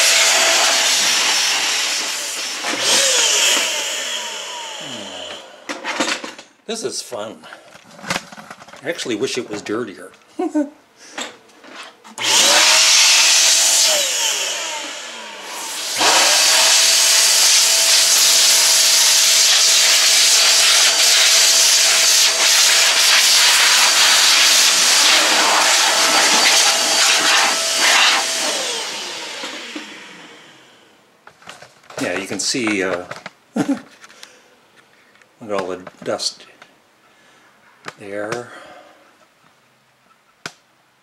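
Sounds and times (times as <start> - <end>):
electric air duster blowing: 0.0 - 5.8, 12.2 - 30.9.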